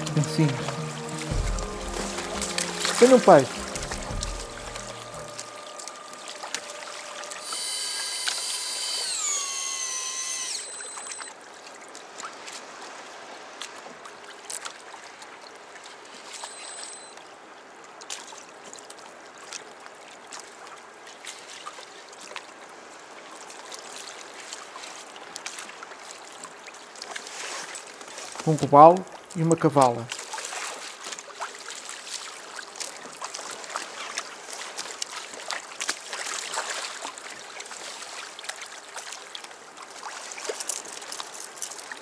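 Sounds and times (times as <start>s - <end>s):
water lapping and splashing: 0.0s - 42.0s
electric fishing reel motor whining: 5.8s - 11.3s, 16.3s - 17.2s.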